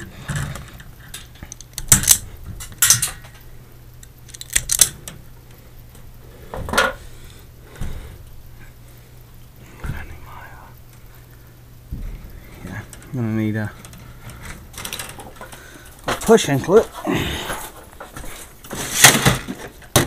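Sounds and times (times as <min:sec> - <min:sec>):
wire stripper metallic clicks: 0:04.0 - 0:05.2.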